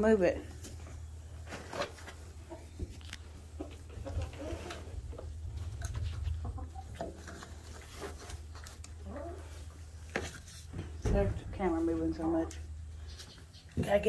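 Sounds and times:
hens clucking softly: 2.3 - 7.6.

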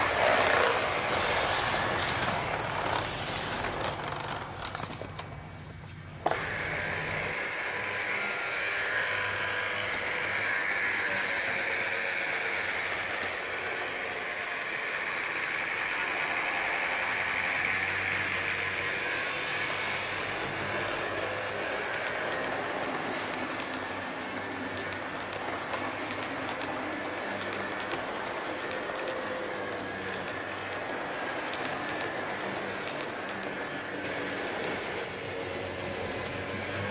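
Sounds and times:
model train motor whine: 0.0 - 5.3, 6.2 - 36.9
wheels rolling hum: 0.0 - 36.9
clicks over rail joints: 15.4 - 34.8.

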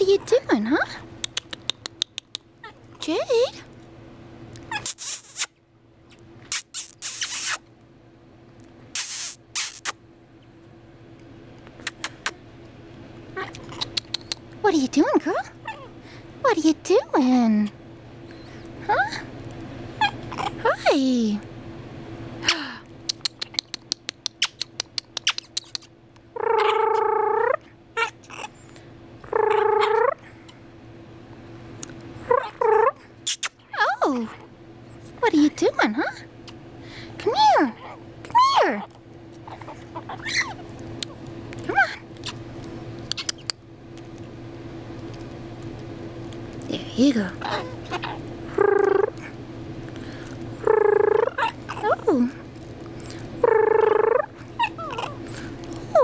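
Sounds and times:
conure drawn-out calls: 26.4 - 28.5.

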